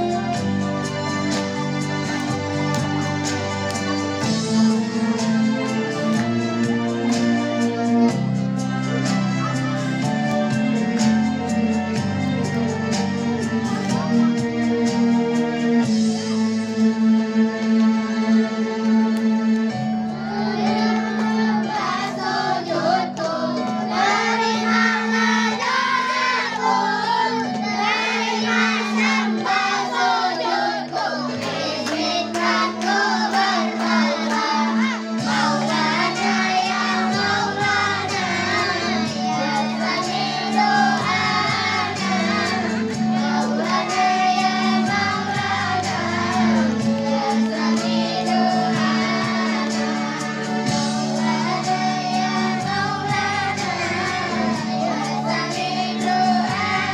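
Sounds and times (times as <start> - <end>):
backing music: 0.0 - 56.9
girls singing into microphones: 20.2 - 56.9.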